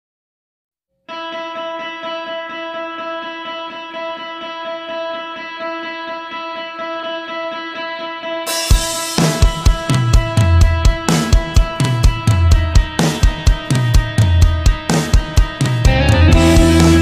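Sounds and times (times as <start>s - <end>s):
instrumental background music: 1.0s - 17.0s.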